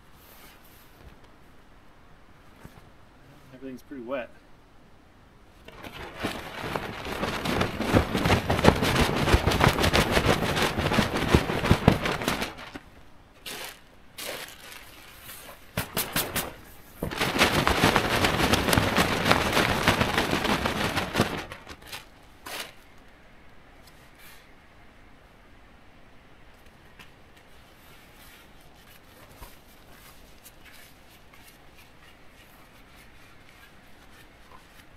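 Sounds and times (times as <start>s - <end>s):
tent fabric crinkling: 5.6s - 23.0s.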